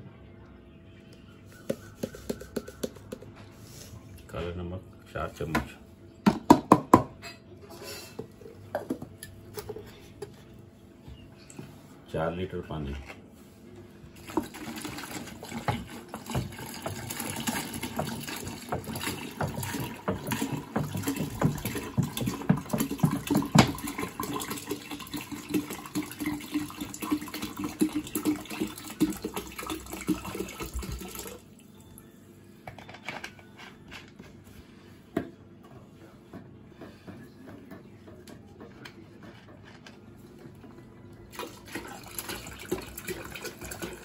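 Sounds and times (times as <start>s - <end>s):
water pouring into a container: 14.2s - 31.4s, 41.3s - 44.0s.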